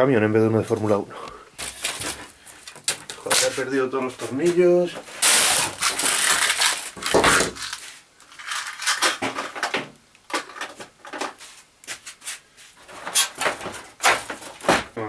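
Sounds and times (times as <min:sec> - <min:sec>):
rummaging through small parts: 0:05.0 - 0:11.4
clatter of tools and parts: 0:05.2 - 0:11.4.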